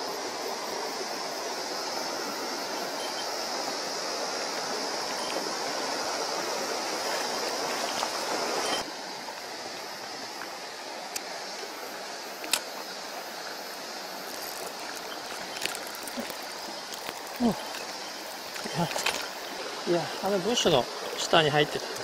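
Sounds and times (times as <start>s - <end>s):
stream running over rocks: 0.0s - 22.0s
sharp clicks: 12.4s - 12.7s.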